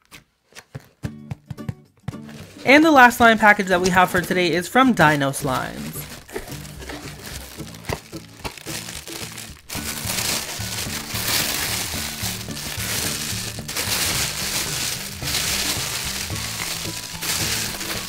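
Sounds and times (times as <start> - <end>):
aluminium foil crinkling: 5.4 - 18.0
background music with bass line: 5.5 - 18.0.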